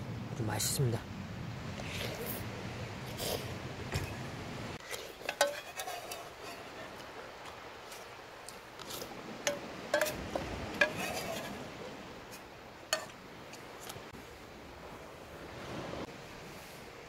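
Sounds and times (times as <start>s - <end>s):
utensils clinking on metal pot: 4.8s - 7.0s, 9.5s - 11.6s.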